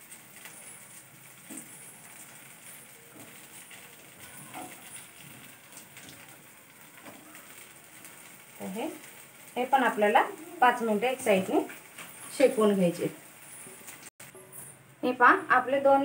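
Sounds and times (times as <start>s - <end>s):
cutlets sizzling in oil: 0.0s - 14.3s.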